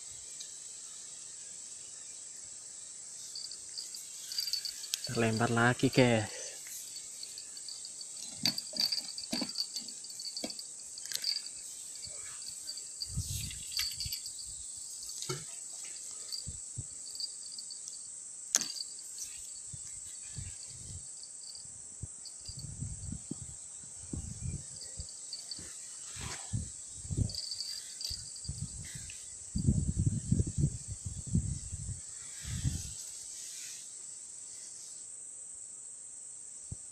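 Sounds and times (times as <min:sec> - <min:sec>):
high insect drone: 0:00.0 - 0:36.9
pulsing insect chirp: 0:00.0 - 0:36.9
handling knocks and rustles: 0:03.4 - 0:05.6, 0:06.6 - 0:17.9, 0:18.6 - 0:19.6.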